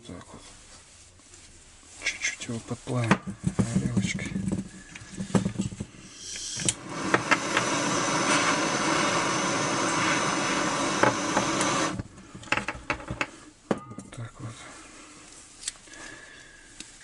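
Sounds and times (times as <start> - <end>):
gas torch hissing: 4.8 - 12.6
gas torch igniter clicks: 6.1 - 12.0.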